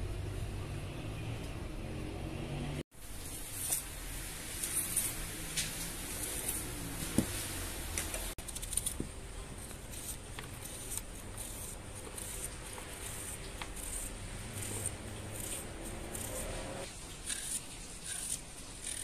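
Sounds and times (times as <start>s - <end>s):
knife cutting onion: 8.4s - 19.0s.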